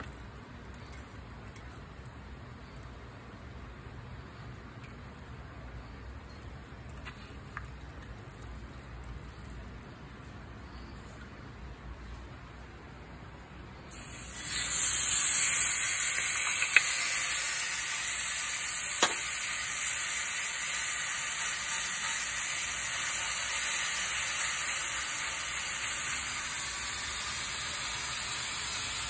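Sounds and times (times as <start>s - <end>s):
meat sizzling on grill: 13.9s - 29.0s.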